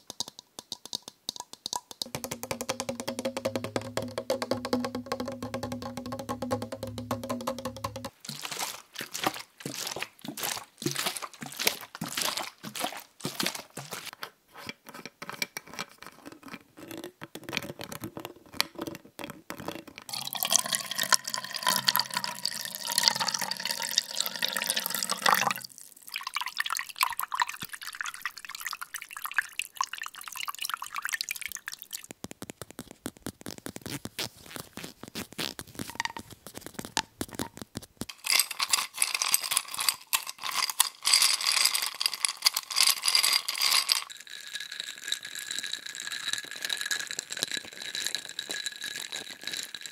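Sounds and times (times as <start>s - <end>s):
plastic bottle crackling: 0.0s - 14.2s, 31.3s - 49.9s
water pouring: 0.9s - 14.1s, 20.1s - 32.1s, 38.1s - 49.9s
ice clinking in a bowl: 4.7s - 14.1s, 20.1s - 32.0s, 38.1s - 49.9s
sipping through a straw: 8.2s - 14.1s.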